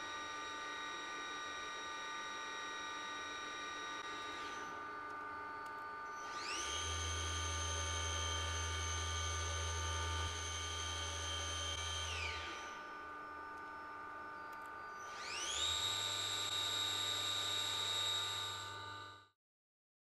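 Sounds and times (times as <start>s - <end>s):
machine spindle whining: 2.8s - 13.8s, 14.4s - 18.8s
machine hum: 4.0s - 15.7s.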